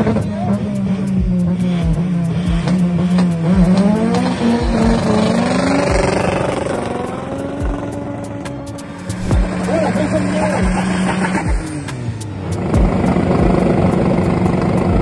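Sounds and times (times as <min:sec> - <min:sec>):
car engine at high revs: 0:00.0 - 0:15.0
low thumps: 0:01.2 - 0:09.8.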